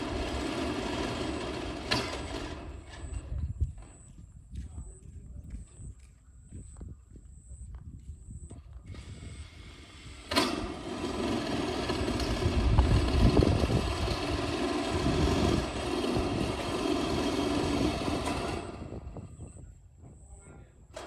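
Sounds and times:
cordless drill driving screw into metal: 9.0s - 12.4s.

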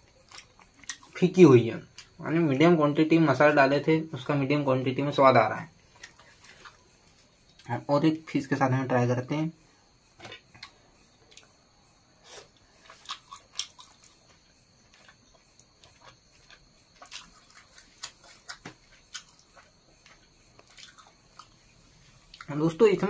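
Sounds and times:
person chewing food: 0.0s - 1.2s, 5.8s - 7.7s, 10.2s - 11.6s, 12.2s - 22.5s.

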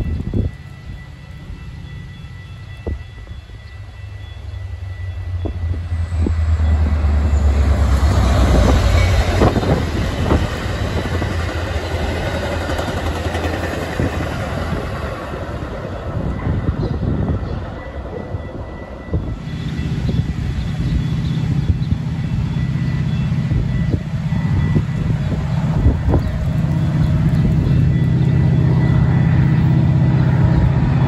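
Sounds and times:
diesel locomotive engine drone: 0.0s - 31.0s
train wheel clicks over rails: 7.8s - 14.8s.

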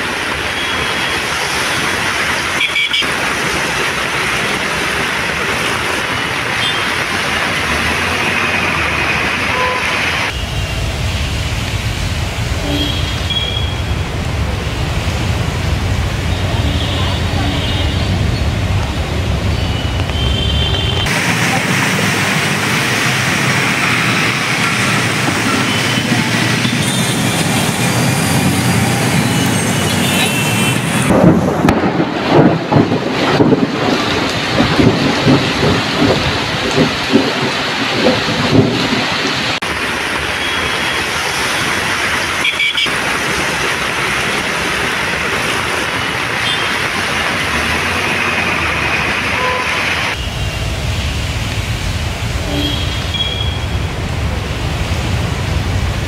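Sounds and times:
heavy rain pouring: 0.0s - 56.0s
low thumps and rumbling: 31.0s - 39.5s.

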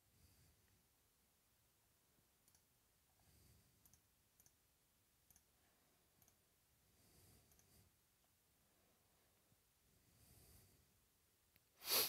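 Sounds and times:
faint clicks: 2.4s - 2.7s, 3.8s - 4.6s, 5.3s - 5.5s, 6.2s - 6.4s, 7.4s - 7.8s.

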